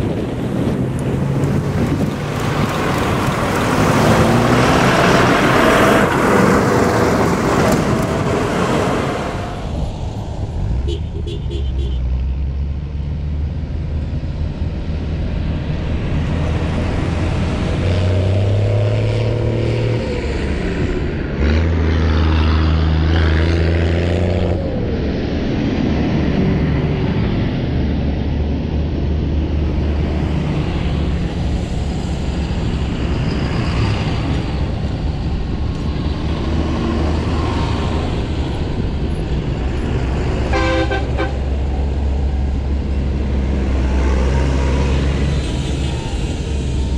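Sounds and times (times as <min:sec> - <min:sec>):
tractor diesel engines droning: 0:00.0 - 0:46.9
horn tooting: 0:10.8 - 0:12.2, 0:40.5 - 0:41.8.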